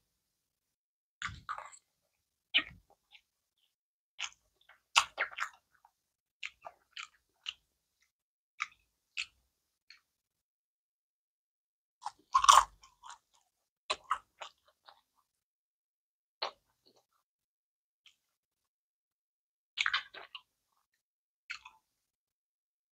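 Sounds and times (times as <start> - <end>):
person chewing crisp food: 4.2 - 7.6, 12.0 - 15.1, 19.8 - 20.5.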